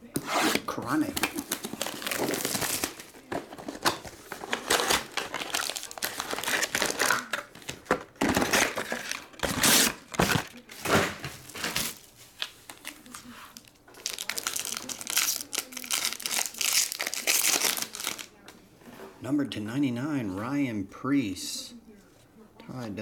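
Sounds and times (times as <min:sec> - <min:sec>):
plastic and foil crinkling: 0:00.1 - 0:18.5.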